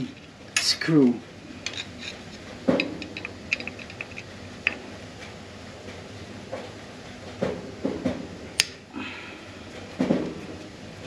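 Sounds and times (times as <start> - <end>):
metal tool clicking and tapping: 2.8 - 4.8.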